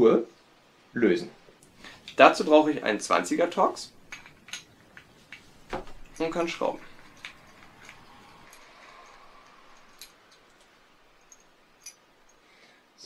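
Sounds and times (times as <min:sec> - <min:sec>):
screwdriver scraping and ticking: 0:04.0 - 0:12.4.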